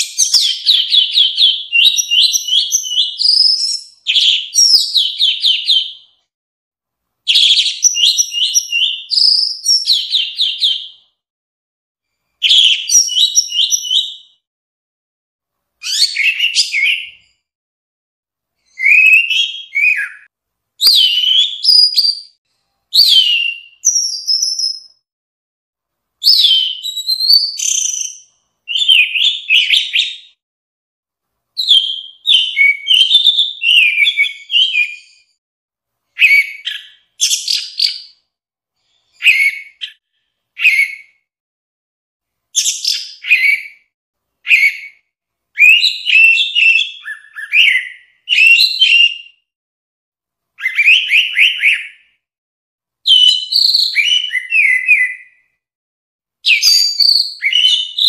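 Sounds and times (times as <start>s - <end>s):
thrush singing whistled phrases: 0.0s - 6.2s, 7.3s - 11.2s, 12.3s - 14.5s, 15.8s - 17.4s, 18.6s - 25.0s, 26.2s - 30.4s, 31.6s - 35.4s, 36.2s - 38.2s, 39.2s - 40.0s, 40.6s - 41.3s, 42.6s - 43.9s, 44.5s - 49.5s, 50.6s - 52.2s, 53.1s - 55.5s, 56.4s - 58.0s.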